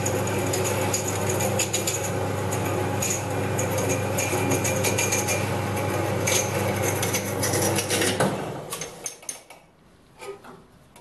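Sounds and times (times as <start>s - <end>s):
bandsaw cutting metal rod: 6.2s - 8.2s.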